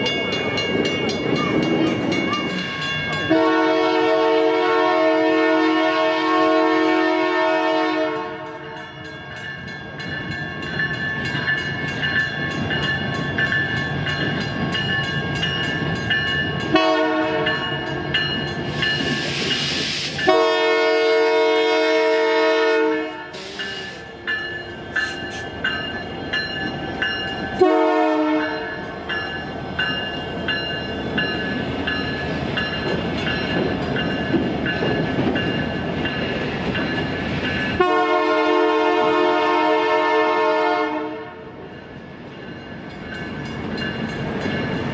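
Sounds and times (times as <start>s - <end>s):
crossing bells ringing: 0.0s - 44.9s
locomotive engine rumbling: 0.0s - 44.9s
train horn blasts: 3.2s - 9.0s, 16.7s - 17.8s, 20.2s - 24.0s, 27.6s - 28.8s, 37.8s - 41.5s
train wheel clatter: 9.4s - 20.9s, 23.3s - 38.4s.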